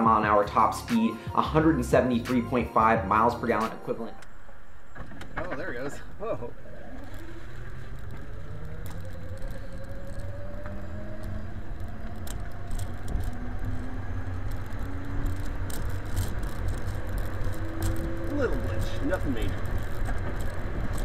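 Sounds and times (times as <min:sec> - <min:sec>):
low road rumble: 0:00.0 - 0:21.0
electric drive whine: 0:03.6 - 0:21.0
clicks and rattles: 0:14.4 - 0:21.0.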